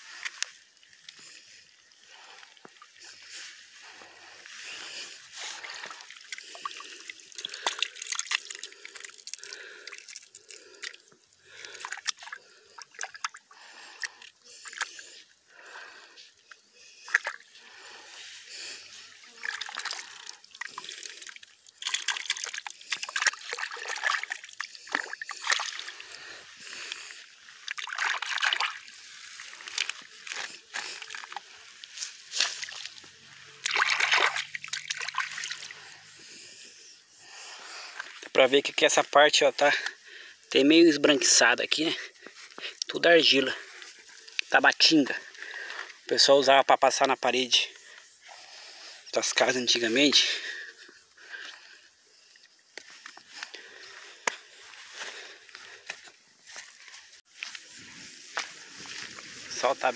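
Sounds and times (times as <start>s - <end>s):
hand squelching wet clay in water: 0.0s - 15.2s, 16.8s - 36.4s
water splashing: 1.0s - 15.0s, 16.9s - 18.0s, 19.0s - 36.4s.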